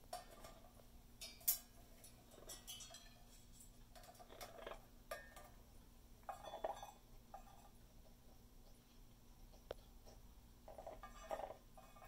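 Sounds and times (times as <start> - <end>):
beak clinking metal dish: 0.1 - 5.6, 6.2 - 7.8, 9.5 - 12.0.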